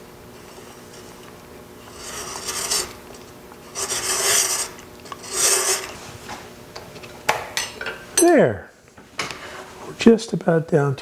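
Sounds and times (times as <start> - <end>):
lathe humming: 0.0 - 6.0
thread chaser rasping on wood: 1.8 - 3.1, 3.7 - 6.0.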